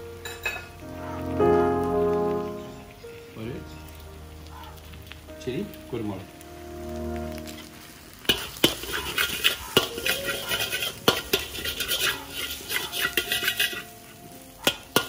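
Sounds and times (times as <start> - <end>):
spatula stirring eggs in pan: 8.2 - 13.9.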